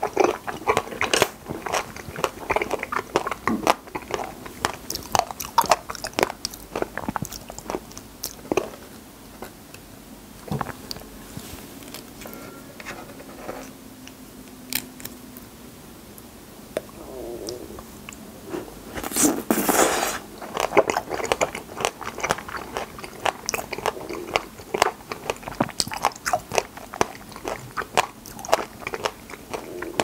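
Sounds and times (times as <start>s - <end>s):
chewing raspberries mouth clicks: 0.0s - 8.8s, 20.4s - 30.0s.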